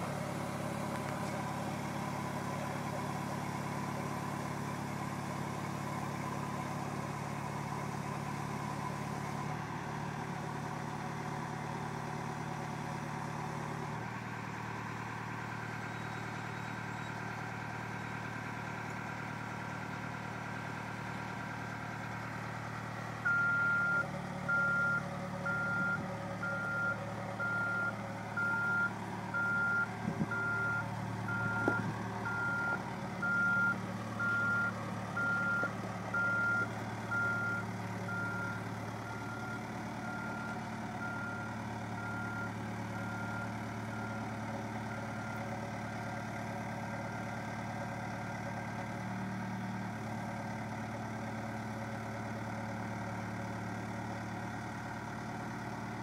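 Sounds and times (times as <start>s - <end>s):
diesel engine running: 0.0s - 56.0s
reversing alarm beeps: 23.2s - 44.3s.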